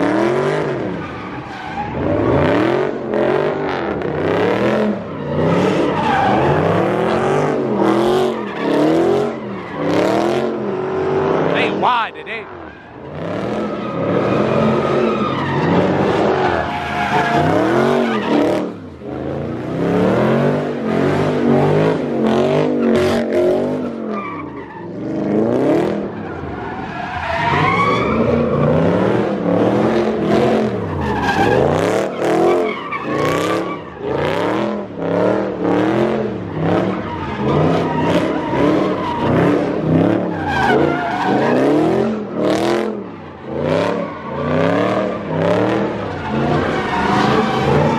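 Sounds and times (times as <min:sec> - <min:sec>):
car engine revving: 0:00.0 - 0:24.2, 0:24.8 - 0:47.9
tyres squealing on asphalt: 0:00.0 - 0:47.9.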